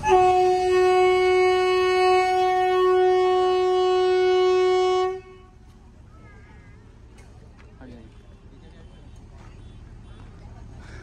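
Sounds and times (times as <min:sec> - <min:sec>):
locomotive horn blast: 0:00.0 - 0:05.7.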